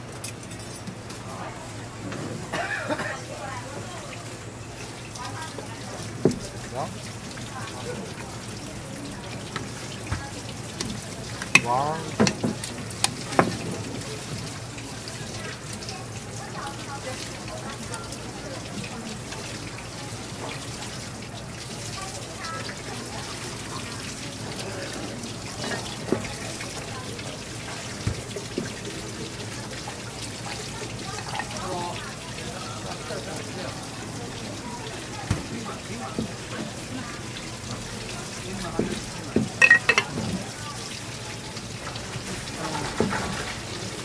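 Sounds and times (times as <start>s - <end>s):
running water: 0.0s - 44.0s
shell knocking on cutting board: 39.6s - 40.1s.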